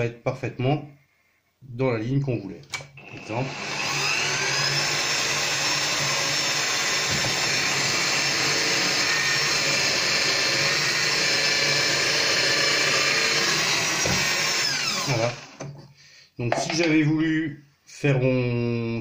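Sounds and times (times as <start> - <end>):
drill bit boring into wood: 3.0 - 15.7
drill press motor whine: 3.0 - 15.7.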